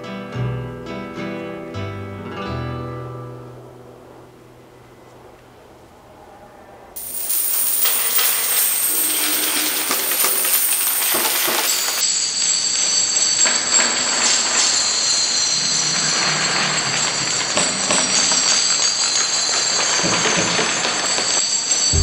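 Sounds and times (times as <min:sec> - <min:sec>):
metallic squealing and rattling: 0:07.3 - 0:12.0.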